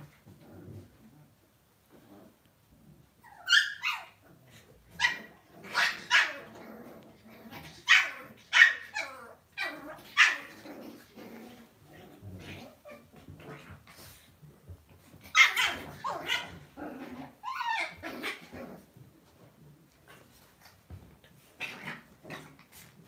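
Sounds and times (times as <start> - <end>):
puppy yapping barks: 5.0 - 6.4, 7.8 - 9.1.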